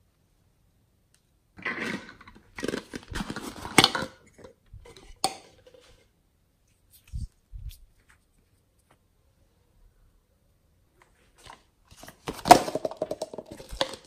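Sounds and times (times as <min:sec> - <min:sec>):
plastic containers rustling and scraping: 0:01.6 - 0:06.2, 0:11.0 - 0:14.0.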